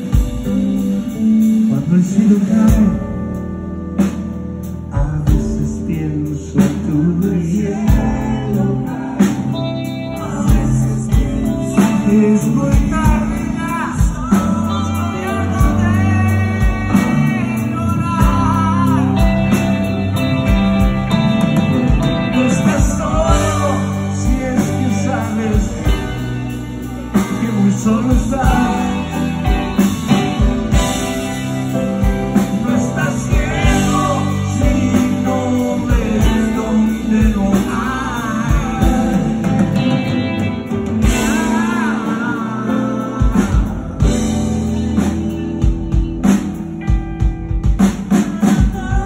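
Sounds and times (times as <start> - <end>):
bass: 0.0 - 49.0
drums: 0.0 - 49.0.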